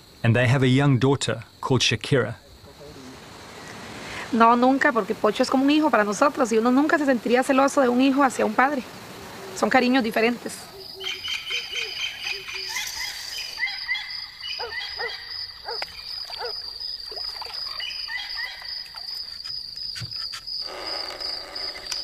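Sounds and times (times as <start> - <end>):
pulsing insect trill: 0.0 - 22.0
frog chirps and calls: 8.3 - 22.0.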